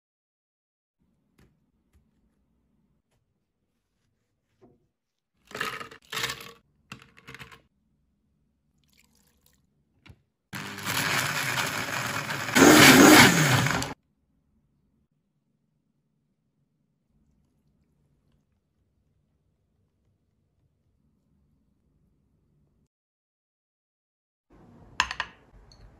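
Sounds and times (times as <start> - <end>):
blender crushing ice: 10.6 - 14.0.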